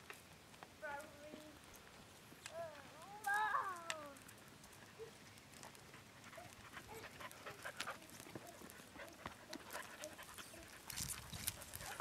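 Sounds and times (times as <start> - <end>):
small clicks and crunches: 2.4 - 10.0, 10.6 - 12.0
dog panting: 4.7 - 12.0.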